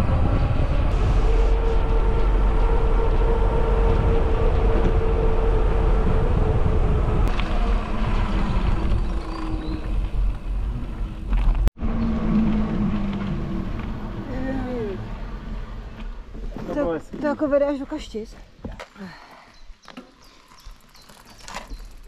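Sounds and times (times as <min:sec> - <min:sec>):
wind buffeting microphone: 0:00.0 - 0:17.0
road noise: 0:00.0 - 0:18.3.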